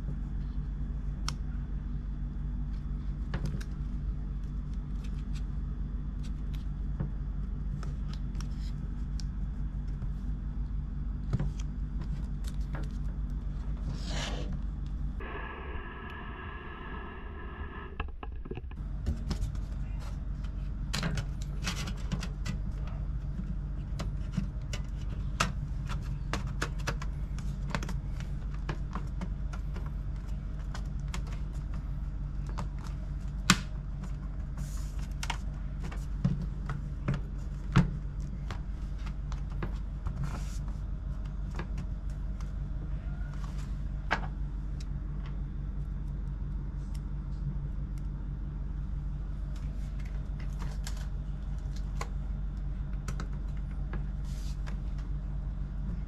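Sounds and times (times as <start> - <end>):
steady low hum: 0.0 - 56.0.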